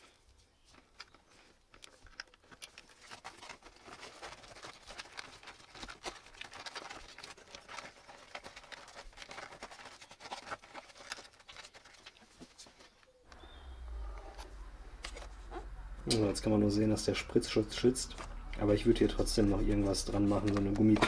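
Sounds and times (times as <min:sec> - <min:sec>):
cables rustling and scraping: 0:00.0 - 0:21.0
plastic connectors clicking: 0:00.9 - 0:03.2.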